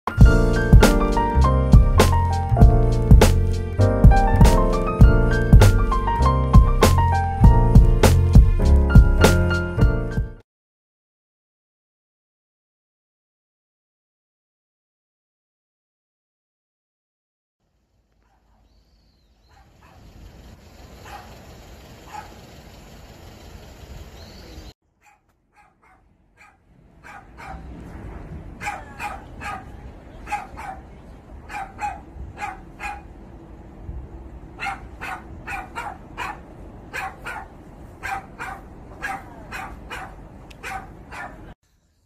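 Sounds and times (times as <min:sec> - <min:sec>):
dog barking: 0:18.2 - 0:18.7, 0:19.4 - 0:20.1, 0:21.0 - 0:21.4, 0:22.0 - 0:22.4, 0:25.0 - 0:27.8, 0:28.6 - 0:33.1, 0:34.6 - 0:41.6
steady background noise: 0:26.6 - 0:41.6.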